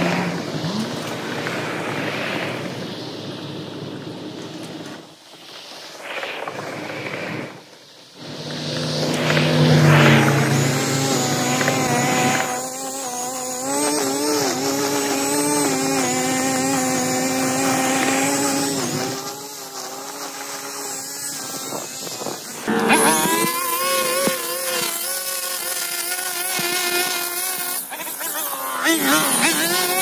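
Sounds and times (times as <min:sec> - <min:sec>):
string trimmer engine at high revs: 0:00.0 - 0:01.3, 0:08.2 - 0:30.0.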